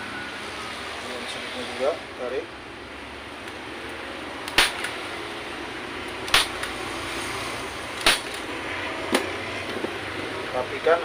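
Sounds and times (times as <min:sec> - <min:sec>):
staple gun firing: 0:04.5 - 0:05.0, 0:06.3 - 0:06.8, 0:08.0 - 0:08.4.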